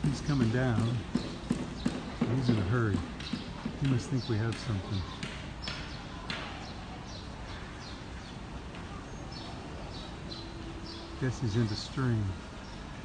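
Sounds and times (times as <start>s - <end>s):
outdoor background noise: 0.0s - 13.0s
faint high bird chirps: 4.2s - 12.9s.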